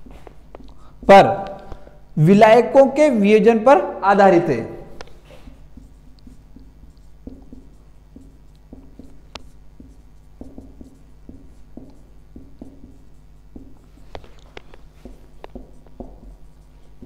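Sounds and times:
steady low hum: 0.0 - 17.0
marker squeaking on whiteboard: 5.0 - 17.0.

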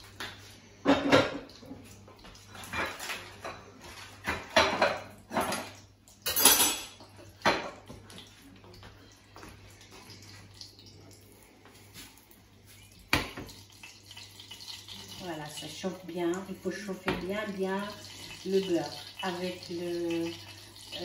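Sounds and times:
plates and cutlery clattering: 0.8 - 1.8, 2.4 - 8.0.

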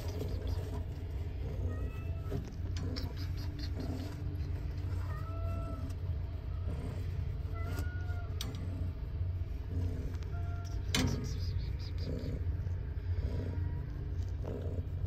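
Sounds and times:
steady low hum: 0.0 - 15.0
cat meowing: 4.9 - 6.0, 7.5 - 8.5.

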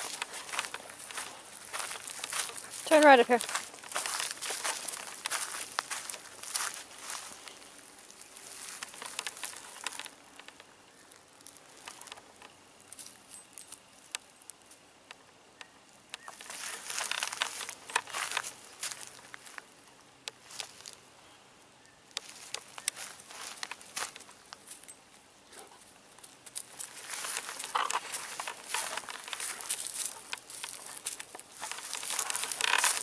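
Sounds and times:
footsteps crunching through dry leaves: 0.0 - 10.2, 16.3 - 19.6, 22.2 - 24.9, 26.4 - 33.0
small crackles and clicks: 0.0 - 21.0, 22.1 - 25.0, 26.2 - 33.0.

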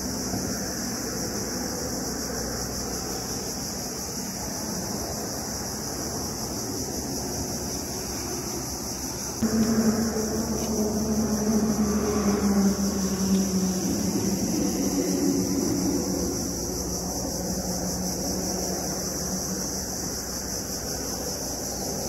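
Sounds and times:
constant high hiss: 0.0 - 22.0
wind rumbling on microphone: 0.0 - 22.0
low hum: 9.3 - 21.3.

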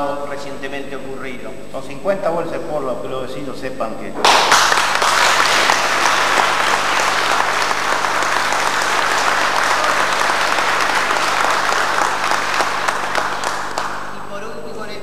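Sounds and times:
audience applauding: 4.2 - 14.2.

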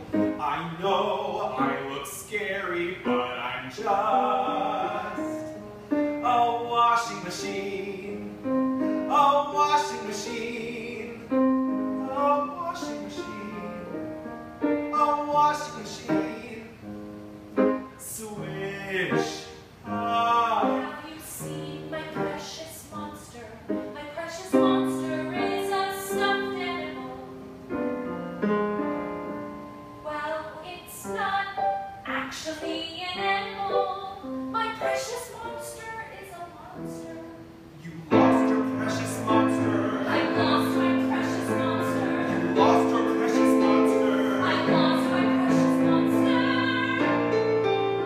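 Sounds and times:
piano accompaniment: 0.0 - 48.0
operatic singing: 0.4 - 5.6, 32.4 - 48.0.

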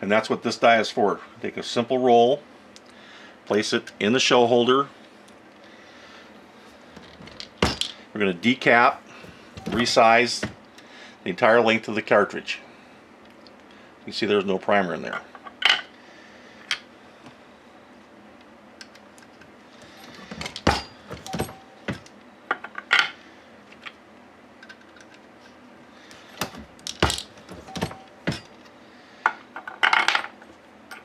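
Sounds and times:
brass cases clinking: 9.3 - 10.5, 20.0 - 22.1, 26.4 - 28.6.

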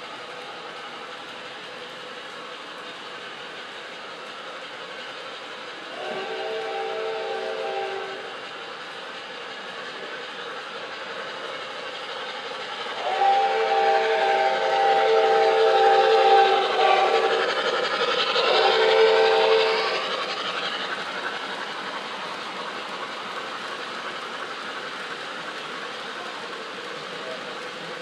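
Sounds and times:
model train running on track: 0.0 - 28.0
model train steam whistle: 5.9 - 8.5, 12.9 - 20.4.

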